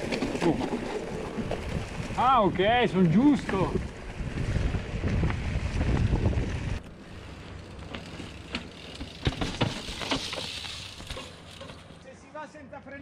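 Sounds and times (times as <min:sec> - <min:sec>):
bike clicking on rocky ground: 0:00.0 - 0:12.2
wind rumble on microphone: 0:00.9 - 0:06.8.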